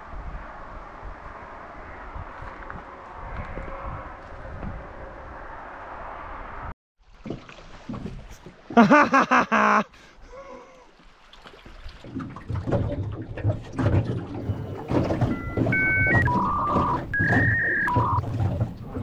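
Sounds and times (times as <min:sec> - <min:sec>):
water noise: 0:00.0 - 0:19.0
oars knocking in oarlocks: 0:12.0 - 0:19.0.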